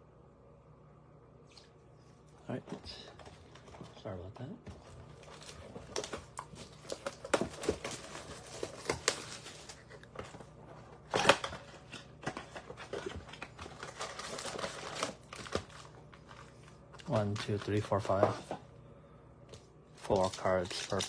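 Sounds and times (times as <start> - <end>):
packaging crinkling and tearing: 4.8 - 18.3, 20.0 - 21.0.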